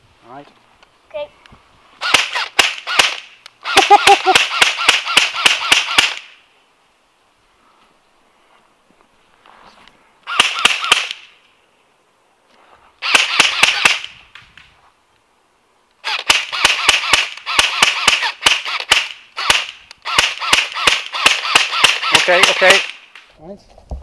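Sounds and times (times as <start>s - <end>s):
airsoft rifle shots: 2.0s - 6.4s, 10.3s - 11.3s, 13.0s - 14.2s, 16.0s - 23.3s.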